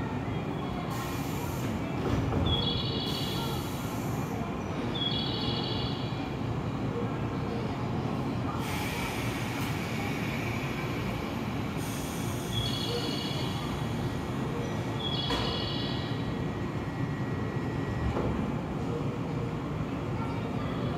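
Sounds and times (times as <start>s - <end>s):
loud hiss of air: 0.9s - 1.8s, 3.0s - 4.4s, 8.6s - 14.1s.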